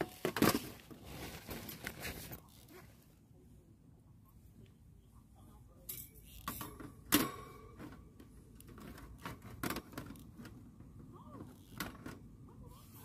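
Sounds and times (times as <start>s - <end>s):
metallic ring: 5.9s - 7.8s
metal grill parts clinking: 5.9s - 8.0s.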